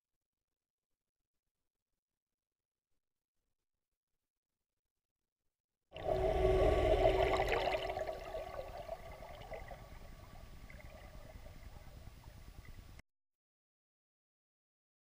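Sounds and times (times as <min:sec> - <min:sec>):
boat motor whine underwater: 0:06.0 - 0:13.0
churning water: 0:06.0 - 0:13.0
low rumble: 0:06.0 - 0:13.0.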